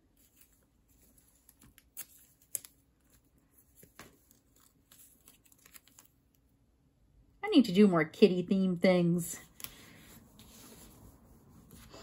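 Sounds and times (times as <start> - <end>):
paper cards rustling: 0.0 - 6.5, 9.4 - 12.0.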